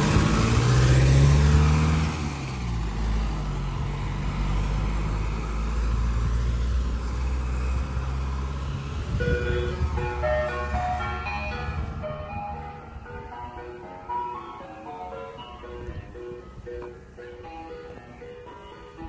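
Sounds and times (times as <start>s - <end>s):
van engine running: 0.0s - 19.0s
ice cream van chime tune: 9.0s - 19.0s.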